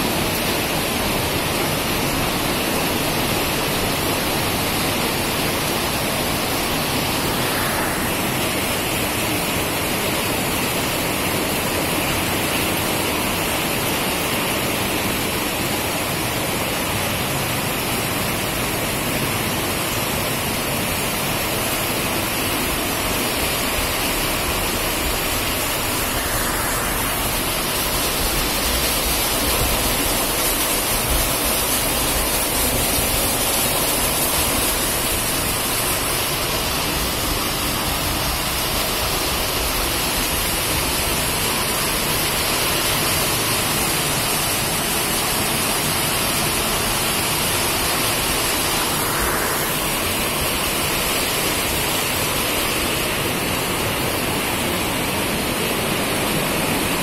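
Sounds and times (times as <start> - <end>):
heavy rain on metal roof: 0.0 - 57.0
runoff water pouring: 21.0 - 53.0.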